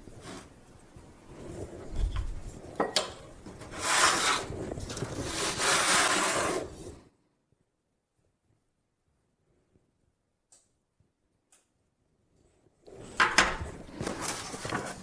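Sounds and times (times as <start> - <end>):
blade rasping across dough: 3.6 - 7.0.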